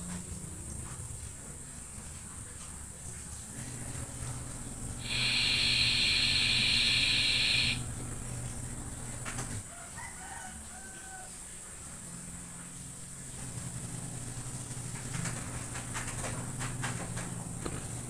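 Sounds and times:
low steady hum: 0.0 - 9.6
faint short chirps: 5.0 - 7.8
high-pitched animal call: 5.0 - 7.8.

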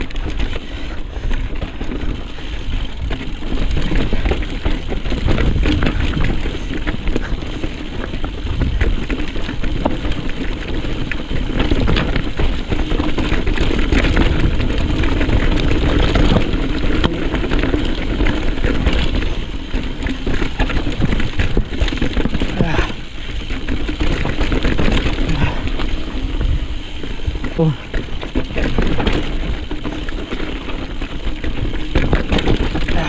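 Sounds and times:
bike rattling over rocks: 0.0 - 33.0
wind rumble on microphone: 0.0 - 33.0.

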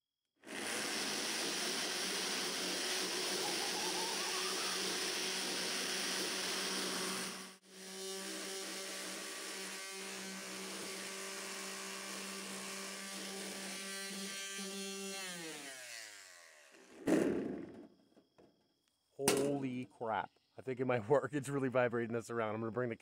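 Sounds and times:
electric sander motor hum: 0.5 - 17.0.

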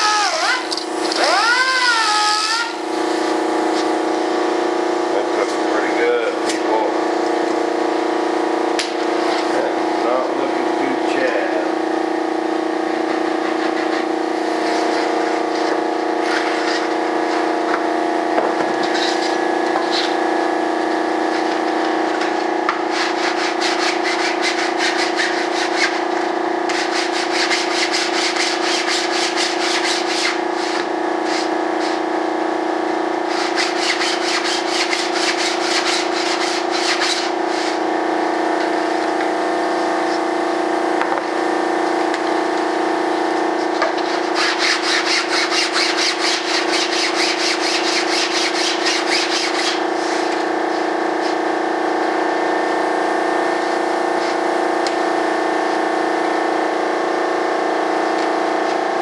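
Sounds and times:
sandpaper rubbing: 0.0 - 2.8, 13.3 - 16.9, 18.8 - 20.2, 22.9 - 26.1, 26.7 - 32.0, 33.3 - 37.8, 44.0 - 51.4
steady machine hum: 0.0 - 59.0.

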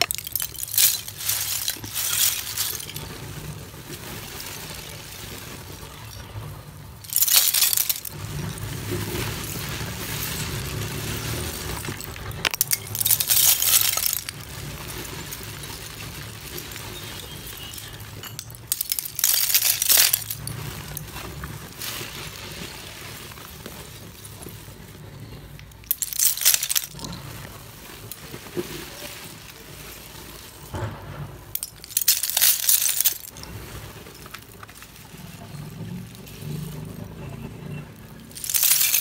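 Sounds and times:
dry clay flakes dropping on heap: 0.0 - 39.0.

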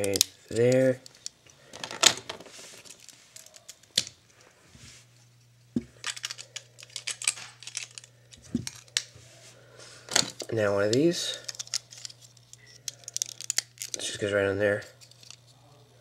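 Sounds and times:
low steady hum: 0.0 - 16.0
plastic bricks clicking: 10.2 - 14.1.

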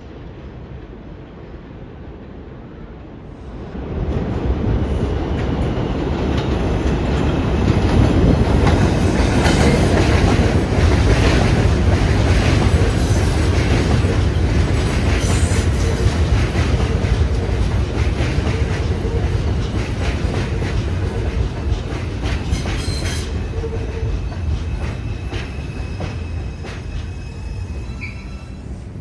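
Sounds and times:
subway train rumble: 0.0 - 29.0.

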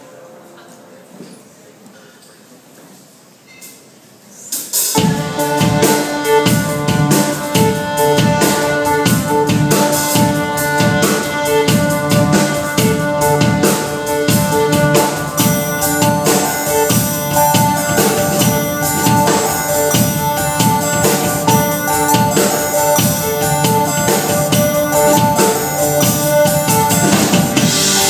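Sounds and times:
drum kit beat: 4.6 - 28.0
live band playing: 4.6 - 28.0
violin: 5.0 - 28.0.

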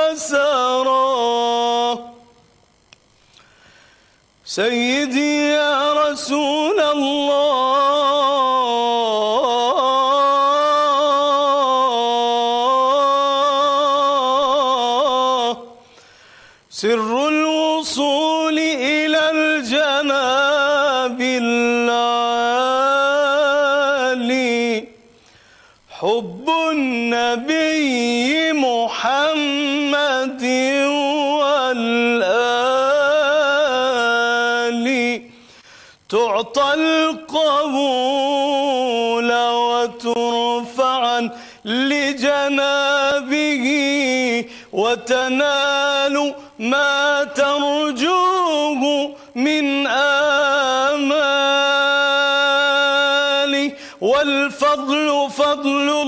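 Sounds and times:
man chanting unaccompanied: 0.0 - 2.4, 4.4 - 15.8, 16.7 - 25.2, 25.8 - 35.4, 36.0 - 56.0
man chanting solo: 36.1 - 56.0.

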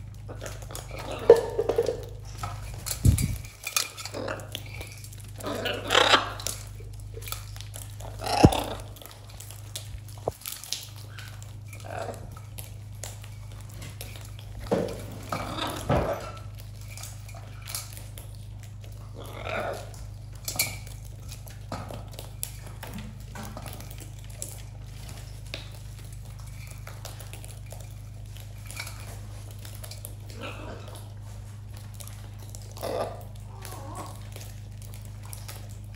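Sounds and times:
steady low hum: 0.0 - 35.9
beaks scraping on metal tray: 0.3 - 9.1.

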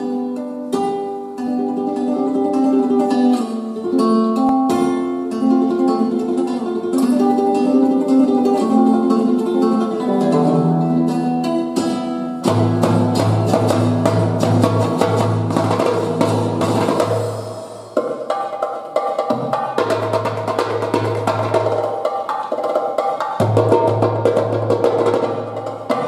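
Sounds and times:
plucked ringing melody: 1.4 - 15.5.

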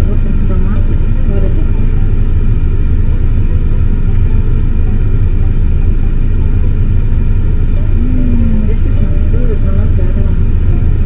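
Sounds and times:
car idling low rumble: 0.0 - 11.0.

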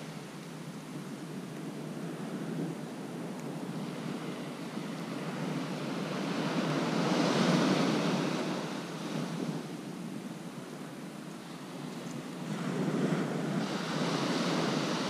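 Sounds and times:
surf breaking on beach: 1.9 - 10.3, 11.4 - 15.0.

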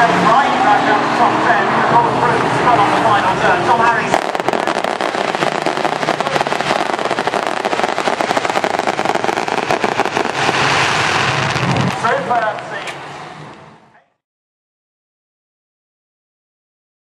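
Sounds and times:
stock car engine revving: 0.0 - 12.3.

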